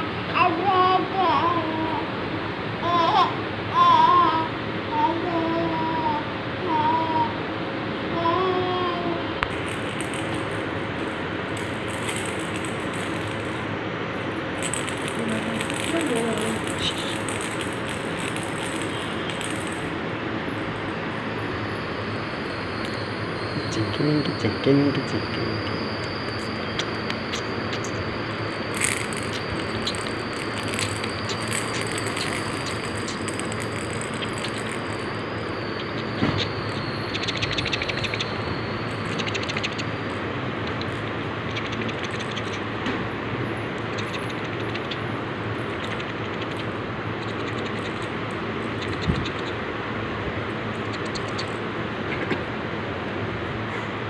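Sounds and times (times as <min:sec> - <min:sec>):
steady background hiss: 0:00.0 - 0:54.0
plastic toy rattle shaken: 0:09.5 - 0:21.0, 0:25.7 - 0:42.6, 0:45.6 - 0:46.7, 0:47.3 - 0:49.5
plastic baby rattle clicks: 0:28.7 - 0:35.2.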